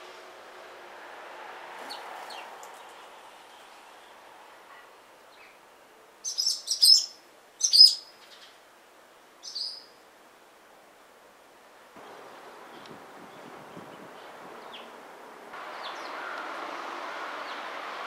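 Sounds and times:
small birds chirping: 1.8 - 8.7, 9.4 - 10.0, 12.0 - 15.0, 15.6 - 16.6.

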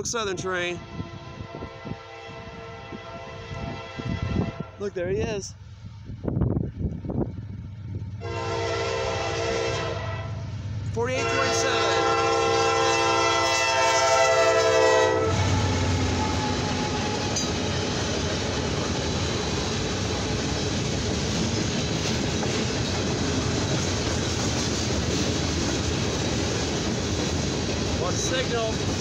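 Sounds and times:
locomotive air horn: 0.8 - 4.8, 8.2 - 10.4, 11.1 - 17.4
locomotive low rumble: 5.5 - 13.5, 14.9 - 29.0
freight cars rolling on rails: 10.7 - 29.0.

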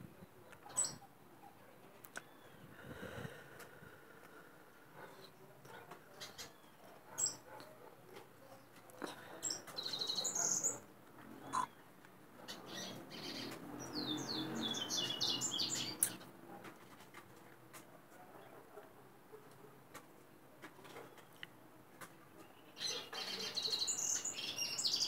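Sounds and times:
bird singing high chirps: 9.5 - 10.8, 12.8 - 16.2, 22.7 - 25.0.

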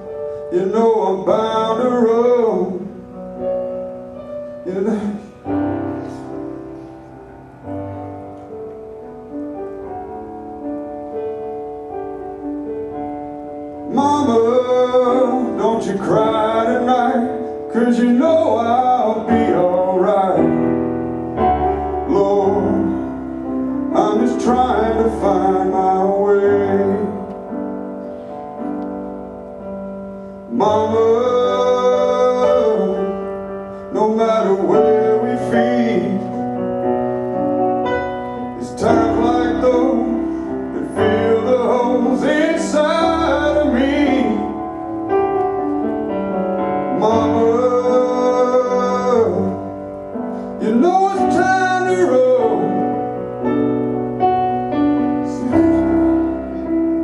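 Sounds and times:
piano accompaniment: 0.0 - 57.0
man singing into a microphone: 0.4 - 3.0, 4.6 - 5.6, 13.9 - 20.8, 22.0 - 23.3, 23.9 - 27.5, 30.5 - 36.7, 38.4 - 44.7, 46.8 - 53.2, 55.0 - 56.8.

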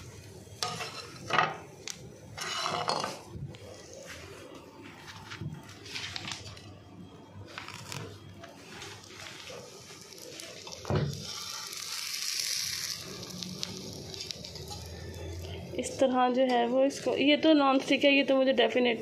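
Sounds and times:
batter sizzling on hot pan: 0.0 - 3.0, 7.5 - 16.1.

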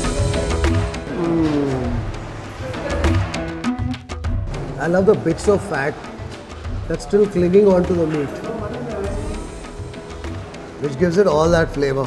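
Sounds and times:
pulsing bass: 0.0 - 4.8.

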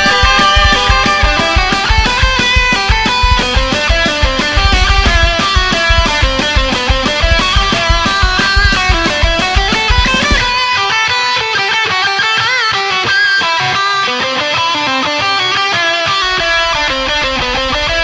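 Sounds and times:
rapid low pulsing beat: 0.0 - 10.6, 16.2 - 18.0
rock music with guitar runs: 0.0 - 18.0.

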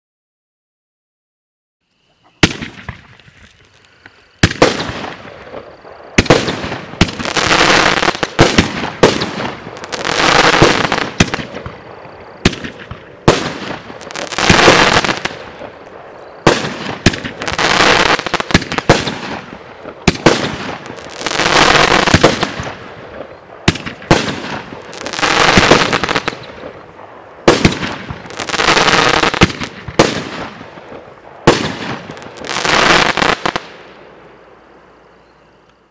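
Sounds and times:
firework launch pops: 2.4 - 9.6, 16.4 - 26.8, 27.5 - 33.7
firework shell crackling: 2.4 - 33.8.

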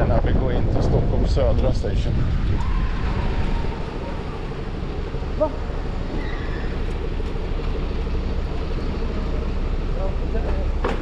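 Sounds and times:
wind on microphone: 0.0 - 8.3
traffic rumble: 0.0 - 11.0.

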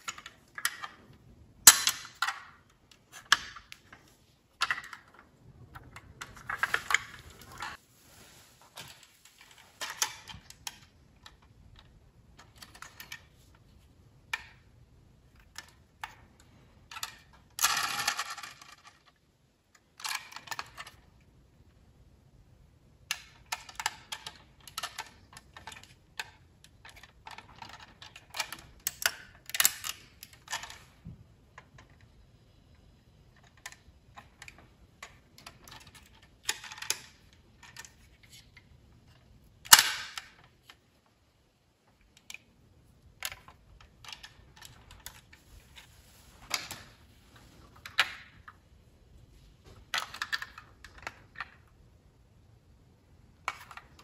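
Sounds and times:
metal model cars clicking and clattering: 0.0 - 7.8, 9.3 - 21.2, 23.0 - 32.1, 32.8 - 41.2, 49.7 - 51.8, 53.4 - 54.0
rattle of small parts: 0.0 - 7.8, 8.8 - 21.2, 23.0 - 41.2, 41.9 - 48.7, 49.7 - 51.8, 53.4 - 54.0.

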